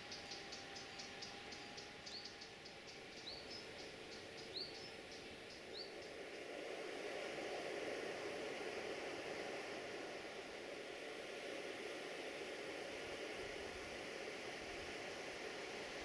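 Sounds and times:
insects chirping: 0.0 - 6.9
low rushing noise: 4.9 - 16.0.

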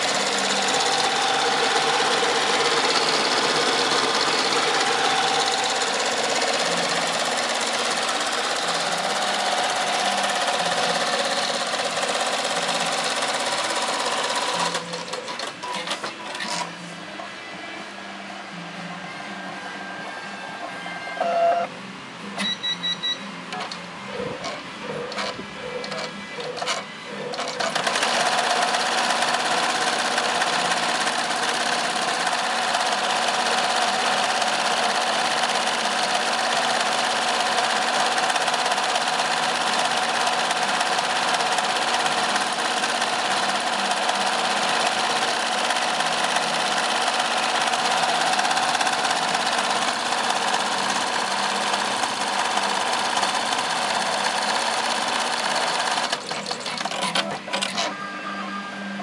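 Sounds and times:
embroidery machine stitching: 0.0 - 16.7, 24.5 - 57.9.

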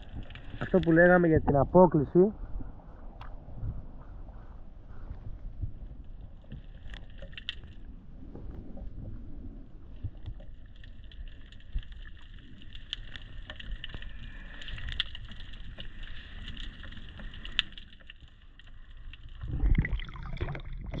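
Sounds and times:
high hiss with crackling ticks: 0.0 - 1.3, 9.9 - 19.4
wind rumbling on microphone: 0.0 - 10.6, 19.4 - 21.0
water lapping against hull: 2.4 - 21.0.

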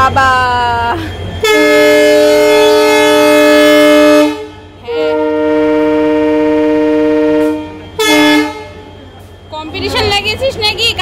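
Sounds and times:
locomotive air horn blasts: 1.4 - 8.9.

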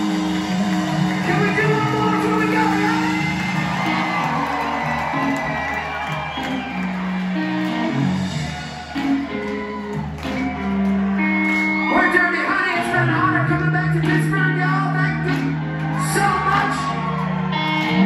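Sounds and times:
live rock band playing: 0.0 - 18.0.

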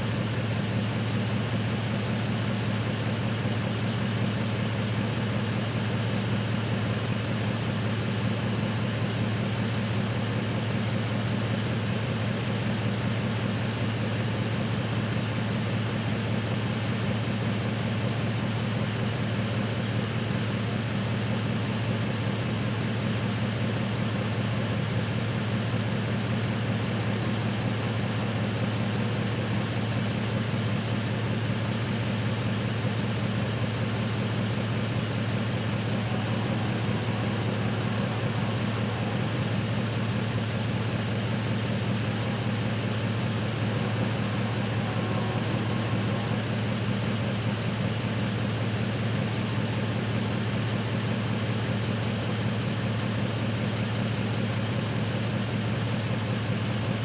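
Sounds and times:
truck engine idling: 0.0 - 57.0.

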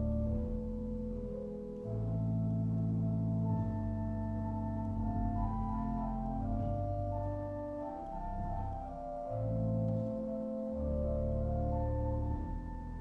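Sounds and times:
pipe organ chords: 0.0 - 13.0.

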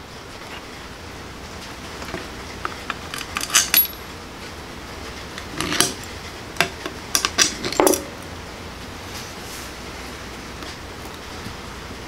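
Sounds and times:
metal parts clinking on workbench: 3.2 - 4.0, 7.2 - 8.1.

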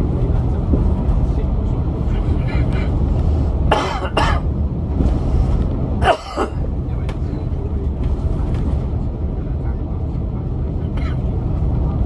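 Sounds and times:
bus diesel engine rumble: 0.0 - 12.0
road noise: 0.0 - 12.0.

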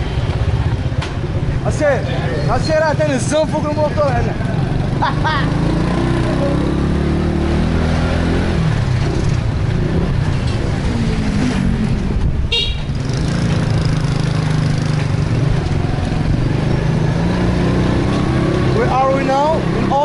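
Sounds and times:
road and wind noise: 0.0 - 20.0
short horn toot: 12.5 - 12.9.

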